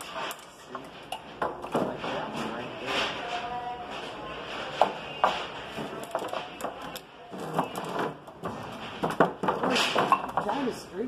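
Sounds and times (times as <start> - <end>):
wooden boards knocking together: 7.5 - 10.7.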